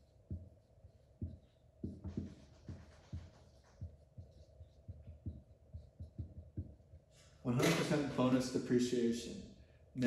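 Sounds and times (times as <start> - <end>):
marker scratching on whiteboard: 0.0 - 7.9.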